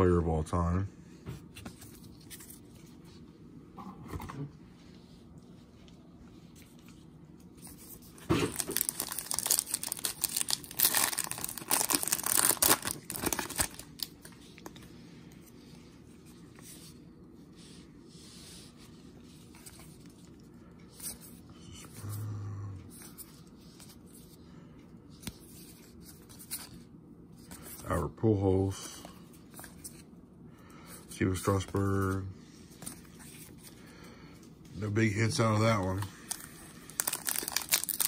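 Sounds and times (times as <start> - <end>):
cards rustling: 1.4 - 3.1, 6.4 - 17.0, 31.0 - 38.0
wrapper tearing and crinkling: 8.4 - 14.1, 36.3 - 38.0.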